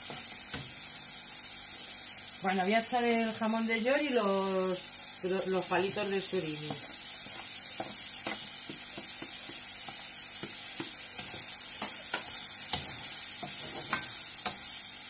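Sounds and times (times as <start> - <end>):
food sizzling in frying pan: 0.0 - 15.0
wooden spatula knocking on pan: 7.8 - 14.6.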